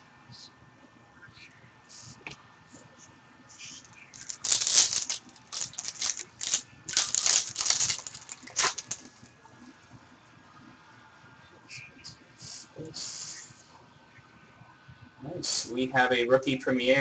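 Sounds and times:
foil wrapper tearing and crinkling: 4.1s - 9.2s.

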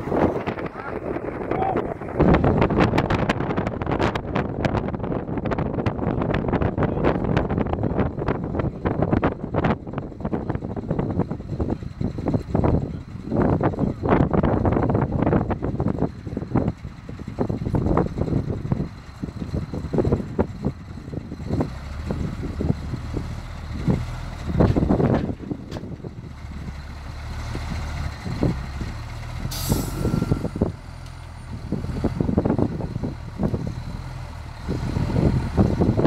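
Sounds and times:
diesel truck engine running: 0.0s - 36.0s
air brake hiss: 29.5s - 30.1s.

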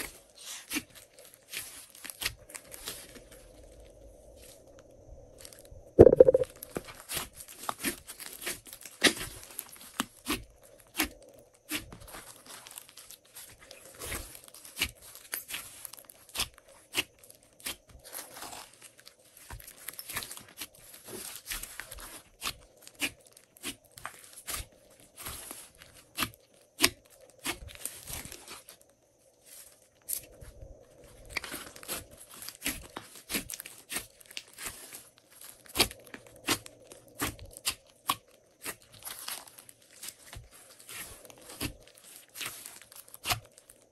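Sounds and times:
slime squeezed by hand popping: 6.0s - 6.5s.

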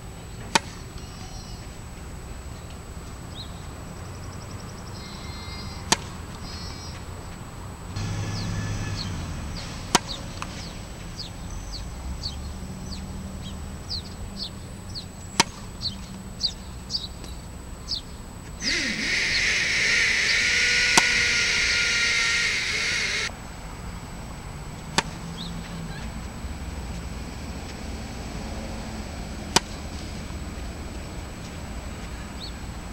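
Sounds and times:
birds chirping: 8.0s - 9.2s, 17.8s - 23.3s
steady high-pitched hiss: 16.3s - 23.5s.

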